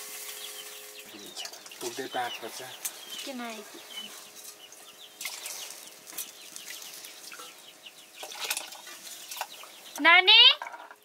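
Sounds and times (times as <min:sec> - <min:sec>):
small birds chirping: 0:00.0 - 0:11.0
water pouring into a pot: 0:05.2 - 0:07.4.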